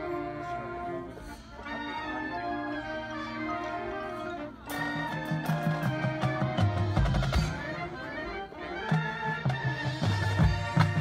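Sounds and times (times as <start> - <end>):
marching band playing: 0.0 - 11.0
percussion strikes: 4.6 - 11.0.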